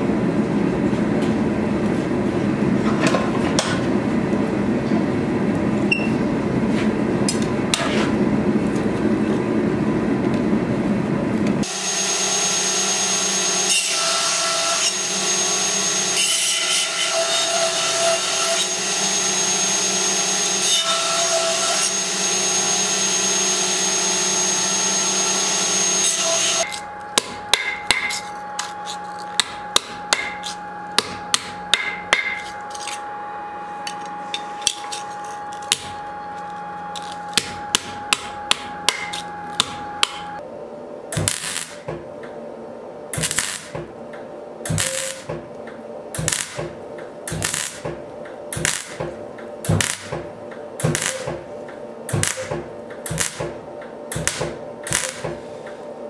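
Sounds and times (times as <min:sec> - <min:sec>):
belt grinder whining: 0:11.6 - 0:16.2, 0:21.2 - 0:26.8
rushing shop noise: 0:11.6 - 0:40.4, 0:43.1 - 0:56.0
hammer strikes on anvil: 0:27.2 - 0:28.3, 0:29.4 - 0:32.6, 0:35.7 - 0:36.0, 0:37.3 - 0:40.3.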